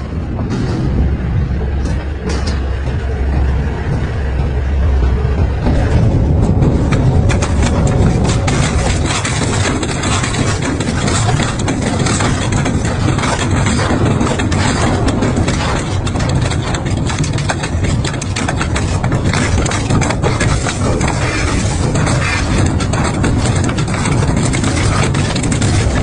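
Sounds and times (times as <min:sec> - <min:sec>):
metal cracking and snapping: 0:05.9 - 0:26.0.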